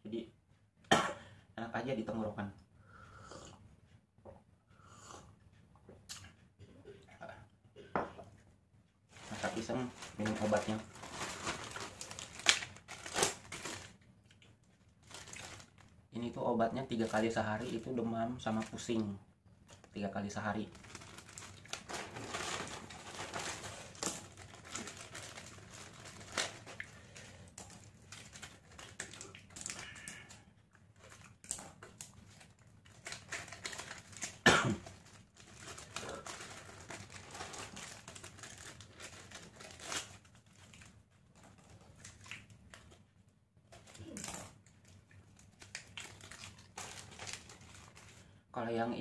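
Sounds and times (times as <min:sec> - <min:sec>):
plastic and paper crinkling: 0:09.1 - 0:14.0, 0:14.7 - 0:19.1, 0:19.7 - 0:43.1, 0:43.7 - 0:48.4.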